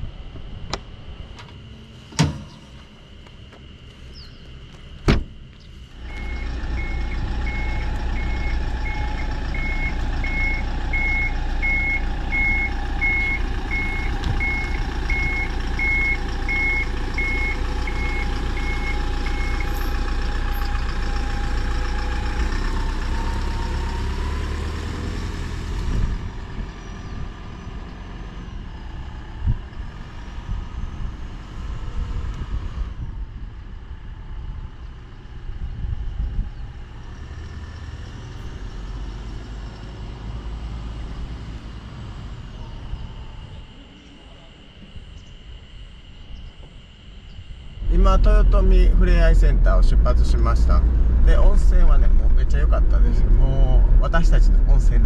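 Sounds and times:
rising engine whine: 0:00.0 - 0:55.0
van engine running: 0:00.0 - 0:55.0
reversing beeper: 0:05.9 - 0:22.3.

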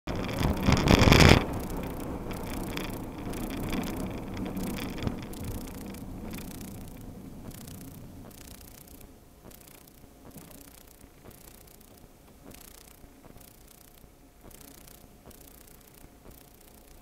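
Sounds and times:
road and engine noise inside car: 0:00.1 - 0:09.3
loud burst of noise: 0:00.1 - 0:13.6.

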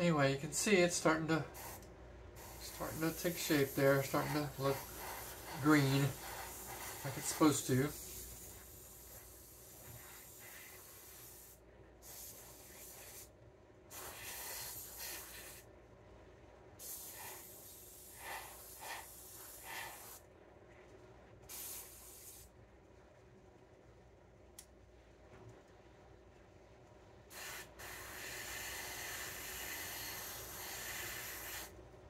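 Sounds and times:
airbrush spraying hiss: 0:01.4 - 0:01.8, 0:02.4 - 0:13.3, 0:13.9 - 0:15.7, 0:16.8 - 0:20.2, 0:21.5 - 0:22.5, 0:27.3 - 0:31.7.

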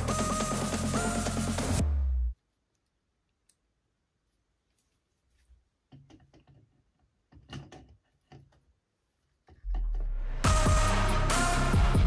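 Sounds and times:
faint clicks and knocks of handling: 0:04.6 - 0:10.0.

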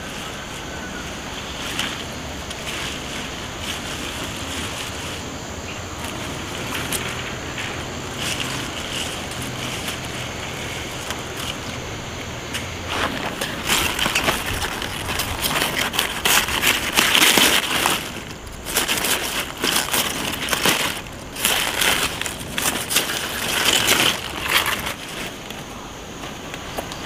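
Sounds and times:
cabbage leaves rustling and snapping: 0:00.0 - 0:27.0.

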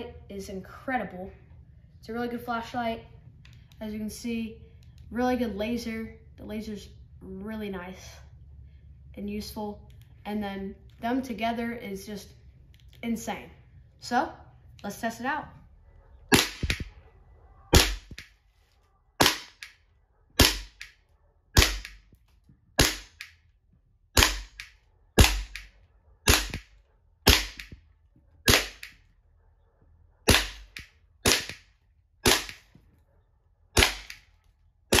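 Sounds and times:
airsoft pistol shots: 0:16.3 - 0:16.9, 0:17.7 - 0:18.3, 0:19.2 - 0:19.8, 0:20.4 - 0:21.0, 0:21.6 - 0:22.0, 0:22.8 - 0:23.3, 0:24.2 - 0:25.7, 0:26.3 - 0:27.8, 0:28.5 - 0:29.0, 0:30.3 - 0:32.7, 0:33.8 - 0:34.3.

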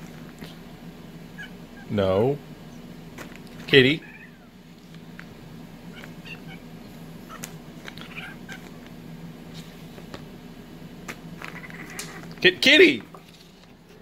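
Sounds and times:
steady low hum: 0:00.0 - 0:14.0
kitten squeaks: 0:04.0 - 0:04.5, 0:05.9 - 0:06.7, 0:07.3 - 0:08.6.

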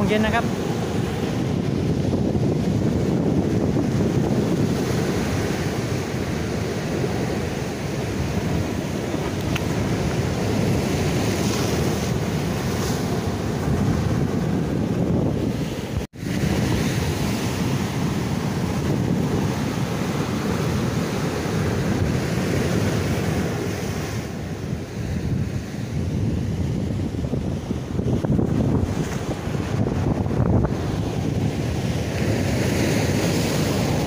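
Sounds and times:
surf breaking on breakwater: 0:00.0 - 0:34.0
wind buffeting microphone: 0:00.0 - 0:34.0.

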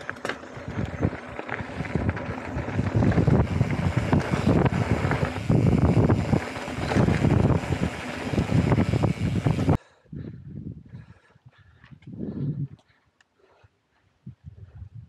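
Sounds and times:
bike rattling over bumps: 0:00.0 - 0:09.8
tyres rolling over gravel: 0:00.0 - 0:09.8
quiet outdoor ambience: 0:00.0 - 0:14.5
wind buffeting microphone: 0:00.5 - 0:12.8.

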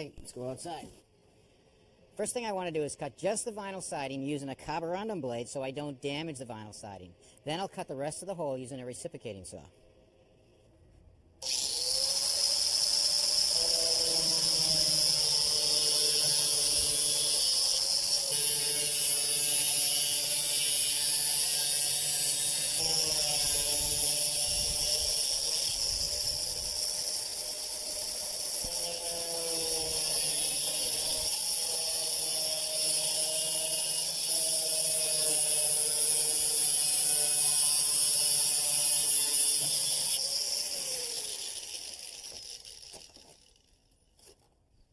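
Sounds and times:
angle grinder cutting siding: 0:11.4 - 0:44.5.

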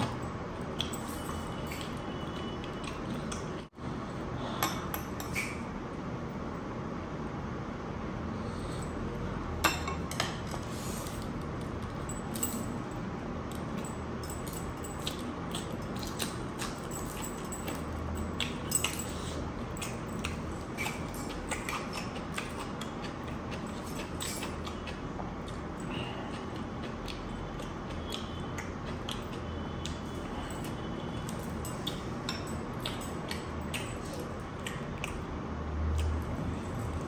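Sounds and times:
wet chewing and mouth clicks: 0:14.6 - 0:37.0.

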